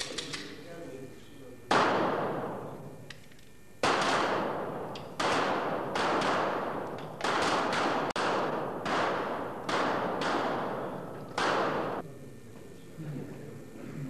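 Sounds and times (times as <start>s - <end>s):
pistol shots echoing: 1.7s - 2.8s, 3.8s - 12.0s.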